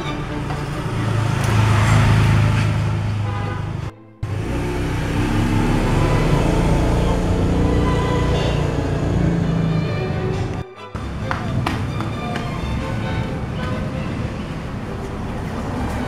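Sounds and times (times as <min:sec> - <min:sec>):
background music: 0:00.0 - 0:02.2, 0:04.0 - 0:16.0
motor vehicle passing: 0:00.0 - 0:16.0.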